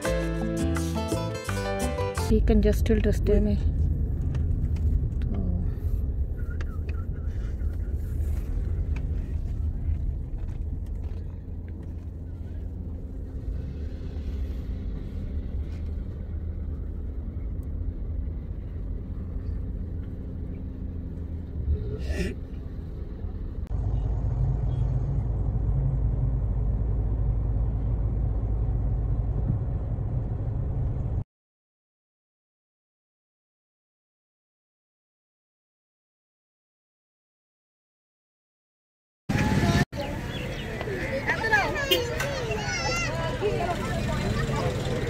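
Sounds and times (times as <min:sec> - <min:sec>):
car engine and road rumble: 0:02.2 - 0:31.2, 0:39.3 - 0:45.0.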